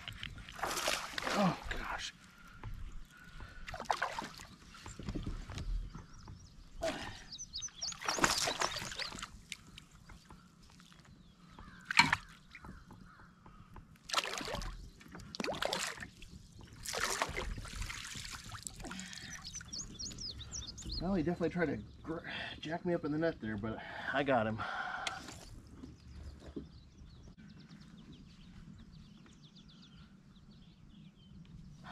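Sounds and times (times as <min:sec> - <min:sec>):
fish splashing in water: 0:00.5 - 0:01.6, 0:07.9 - 0:09.5, 0:14.1 - 0:14.8, 0:15.4 - 0:16.1, 0:16.8 - 0:19.4.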